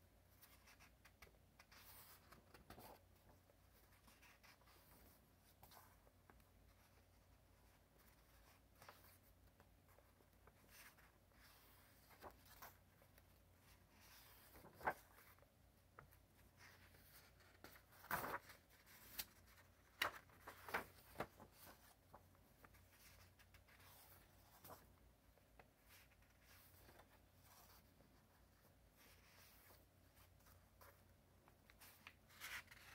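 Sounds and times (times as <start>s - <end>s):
paper pages rustling: 0.4s - 32.9s
page flips: 14.1s - 15.4s, 16.9s - 25.0s, 31.7s - 32.9s.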